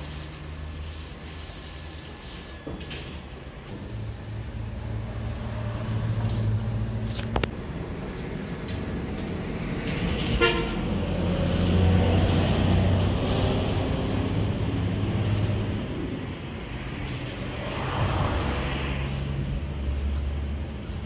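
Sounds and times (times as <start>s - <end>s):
low mechanical hum: 0.0s - 11.2s.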